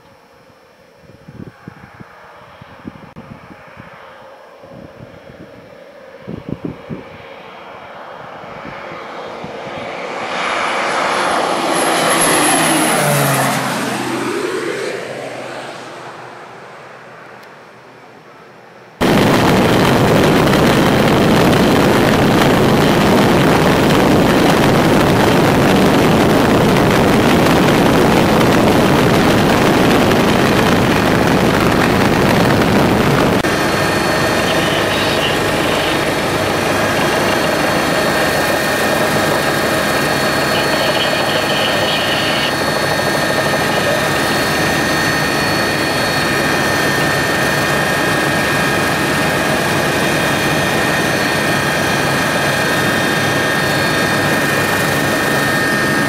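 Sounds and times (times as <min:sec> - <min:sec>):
whining turbine tones: 0:00.0 - 0:16.2, 0:19.0 - 0:56.0
aircraft engine and rushing air: 0:00.2 - 0:18.1, 0:19.0 - 0:56.0.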